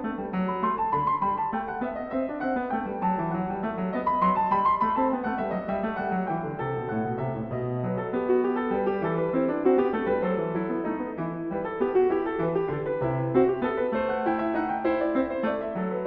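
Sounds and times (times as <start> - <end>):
solo piano music: 0.0 - 16.0.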